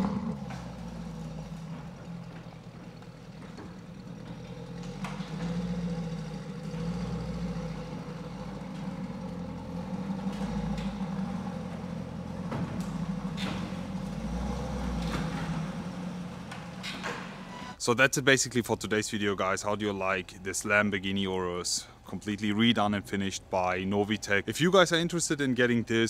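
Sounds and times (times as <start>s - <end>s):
car engine idling: 0.0s - 17.8s
engine revving: 0.0s - 17.8s.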